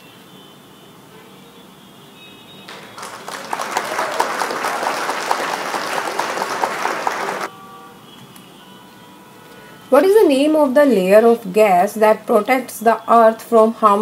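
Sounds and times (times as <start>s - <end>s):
applause: 2.7s - 7.5s.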